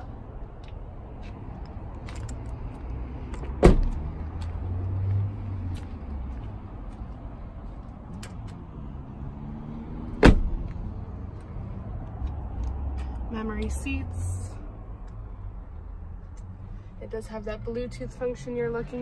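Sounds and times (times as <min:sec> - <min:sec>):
car door shutting thud: 0:03.6 - 0:04.0, 0:10.2 - 0:10.6.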